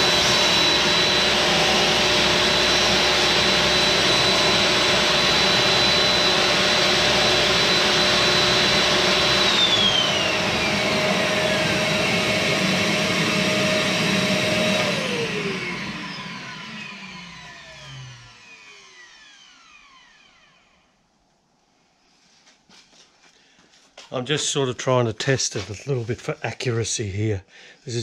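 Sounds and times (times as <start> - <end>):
table saw winding down: 0.0 - 20.8
shop vacuum high whine: 0.0 - 21.0.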